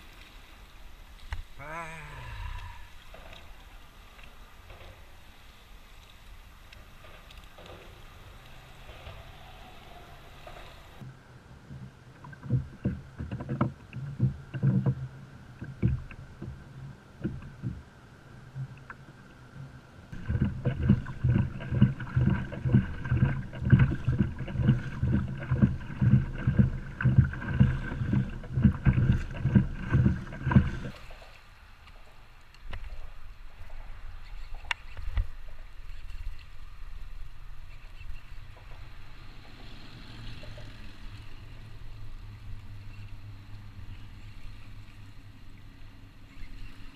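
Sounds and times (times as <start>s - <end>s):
water thumping kayak hull: 11.7s - 17.9s, 18.5s - 31.0s.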